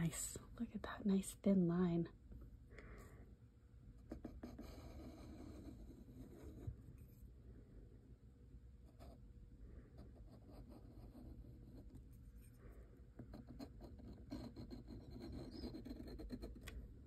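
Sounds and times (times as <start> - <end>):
pen nib scratching paper: 4.0 - 6.8, 10.0 - 12.5, 13.2 - 16.8.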